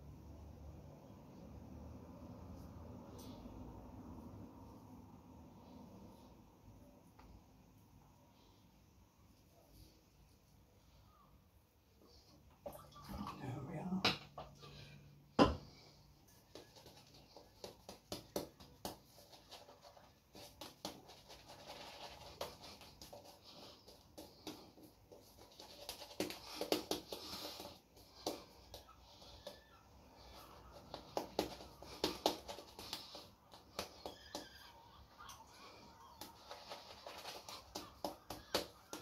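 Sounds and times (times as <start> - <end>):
shaving brush squishing lather: 16.6 - 28.8.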